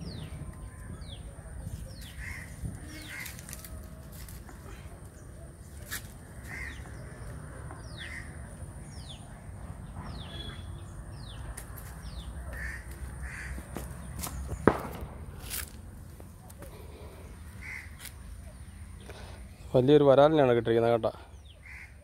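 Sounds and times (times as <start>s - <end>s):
high falling bird calls: 0.0s - 3.8s, 6.2s - 15.0s
crows cawing: 2.1s - 3.5s, 6.4s - 7.1s, 12.5s - 13.7s, 17.6s - 18.0s, 21.6s - 22.0s.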